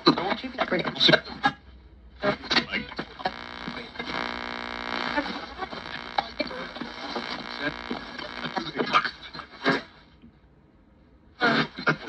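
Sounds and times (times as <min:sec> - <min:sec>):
faint broken radio sounds: 0:02.2 - 0:10.0
electrical buzzing hum: 0:03.2 - 0:08.7.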